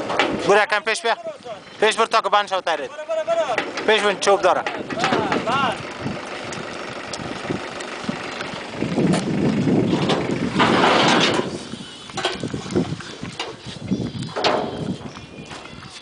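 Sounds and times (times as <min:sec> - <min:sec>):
car engine running: 0:03.3 - 0:12.4.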